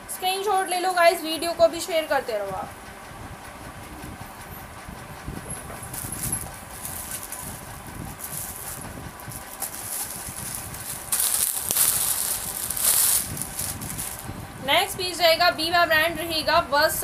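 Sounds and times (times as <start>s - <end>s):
garments rustling: 5.9s - 14.3s
scattered crackles: 5.9s - 14.3s.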